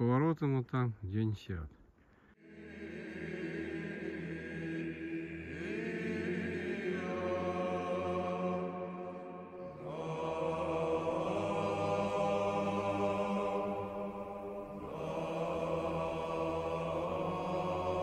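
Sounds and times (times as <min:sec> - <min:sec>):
voices chanting long notes: 0:02.4 - 0:18.0
low drone: 0:02.5 - 0:18.0.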